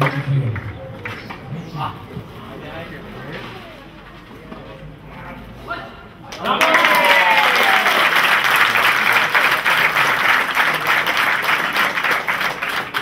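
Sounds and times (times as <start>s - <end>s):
spectators applauding: 6.3s - 13.0s.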